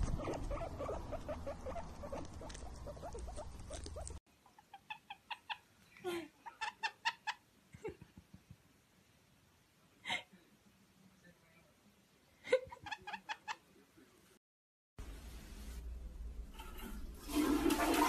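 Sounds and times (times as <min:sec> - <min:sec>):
person giggling: 0:07.8 - 0:08.5.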